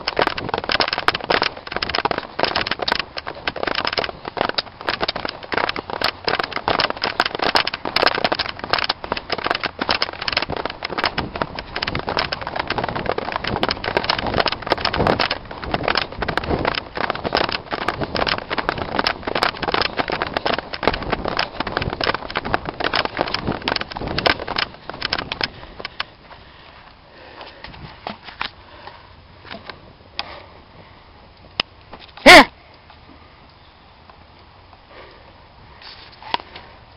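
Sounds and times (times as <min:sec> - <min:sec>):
wind buffeting microphone: 0:00.0 - 0:28.5.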